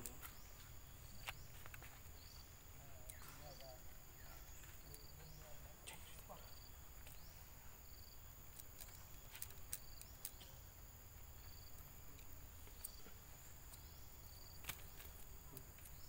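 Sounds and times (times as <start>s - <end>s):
insect high drone: 0.0s - 16.0s
sharp clicks: 8.4s - 10.6s.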